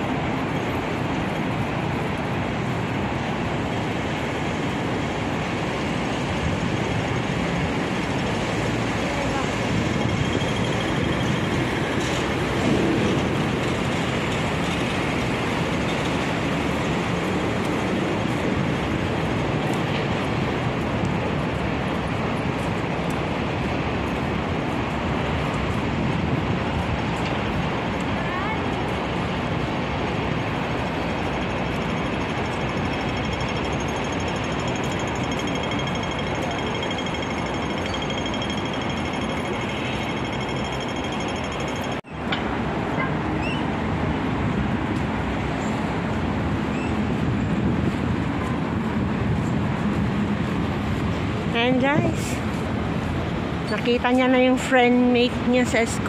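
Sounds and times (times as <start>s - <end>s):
outdoor background noise: 0.0s - 56.0s.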